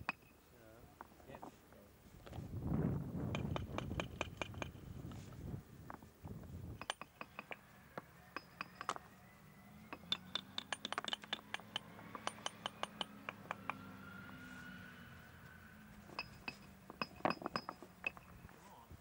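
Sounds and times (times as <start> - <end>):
stones clinking and knocking: 6.8 - 9.0, 9.9 - 13.9, 16.1 - 18.6.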